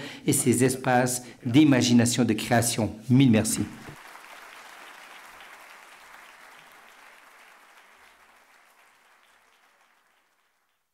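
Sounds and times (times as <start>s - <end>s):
audience applauding: 3.9s - 10.9s.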